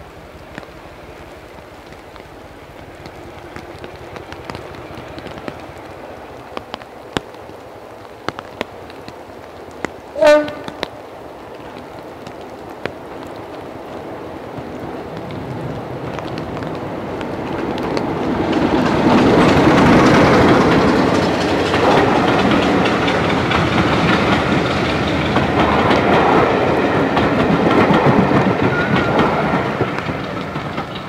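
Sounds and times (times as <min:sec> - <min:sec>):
train rumbling: 0:00.0 - 0:31.0
locomotive horn blast: 0:10.2 - 0:10.8.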